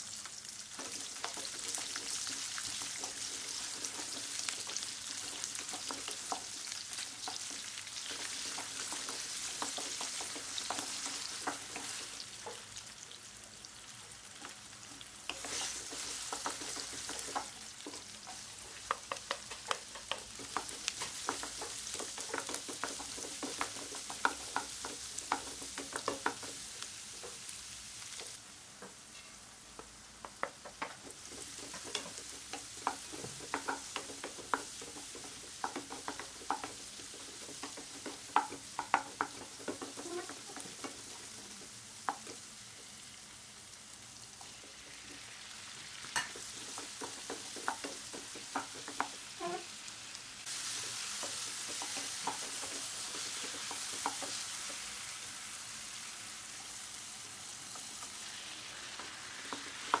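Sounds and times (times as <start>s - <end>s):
vegetables sizzling in a pan: 0.0s - 60.0s
wooden spatula scraping a pan: 15.3s - 27.5s, 30.7s - 42.3s.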